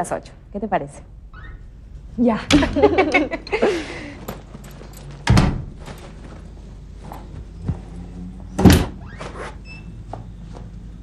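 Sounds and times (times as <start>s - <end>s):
door thudding shut: 2.5s - 3.1s, 5.2s - 5.8s, 8.6s - 9.1s.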